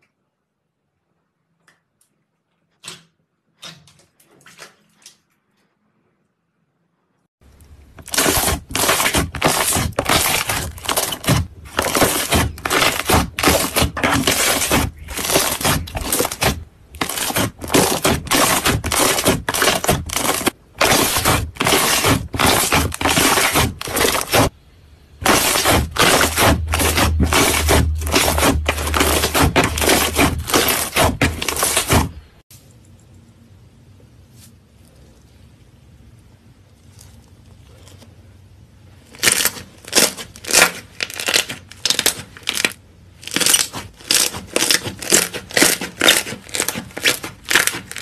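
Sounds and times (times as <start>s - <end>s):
slime crackling and popping: 7.6s - 24.5s, 25.2s - 32.2s, 39.2s - 48.0s.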